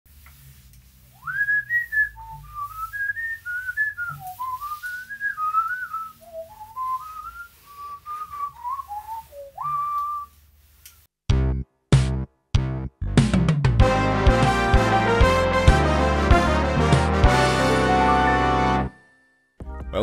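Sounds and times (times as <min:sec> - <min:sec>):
person whistling a tune: 0:01.2 - 0:10.3.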